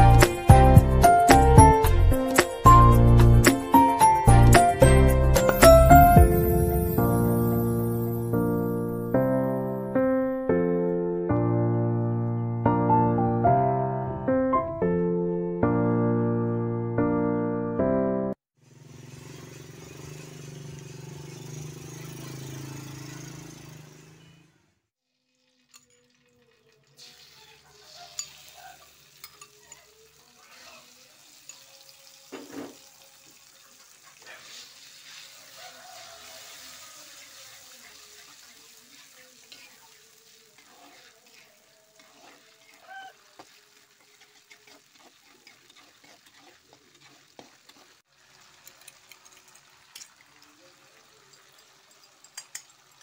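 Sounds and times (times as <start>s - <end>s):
chili paste sizzling in oil: 0.0s - 9.8s, 18.5s - 24.4s, 25.0s - 53.0s
background music: 0.0s - 18.4s
metal spatula scraping pan: 36.4s - 48.0s.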